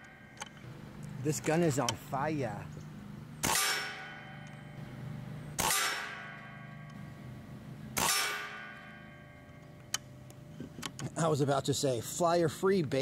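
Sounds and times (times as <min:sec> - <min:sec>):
air rifle shots: 0:03.4 - 0:04.4, 0:05.6 - 0:06.9, 0:08.0 - 0:08.9
metallic ringing: 0:03.4 - 0:07.3, 0:08.0 - 0:09.9.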